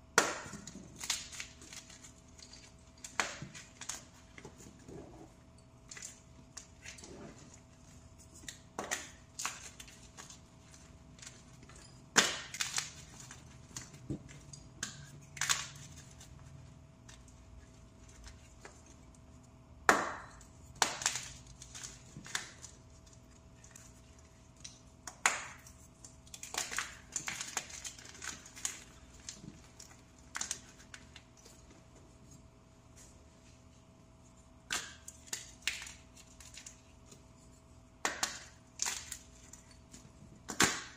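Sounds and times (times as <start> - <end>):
pieces snapping: 0.1 - 4.8, 8.2 - 31.6, 34.6 - 40.9.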